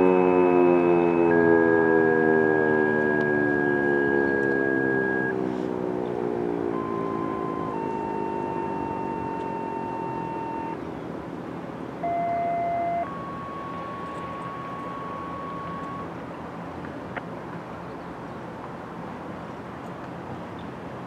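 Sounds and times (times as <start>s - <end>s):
mechanical siren winding down: 0.0s - 10.8s, 12.0s - 16.3s
radio paging tones: 2.2s - 5.3s, 6.7s - 10.8s, 12.0s - 16.2s.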